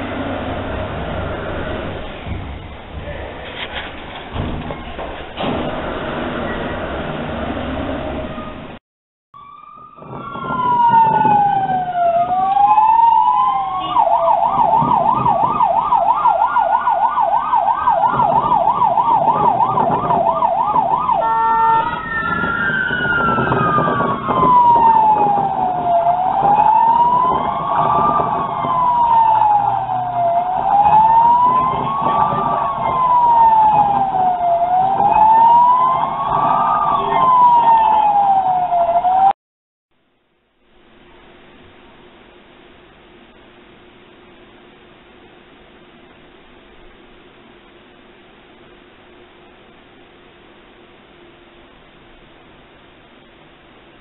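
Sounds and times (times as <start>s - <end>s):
emergency siren wailing and yelping: 9.4s - 39.4s.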